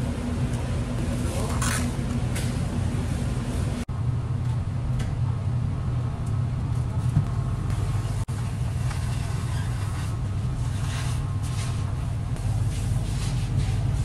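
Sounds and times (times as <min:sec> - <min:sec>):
machine hum: 0:00.0 - 0:14.0.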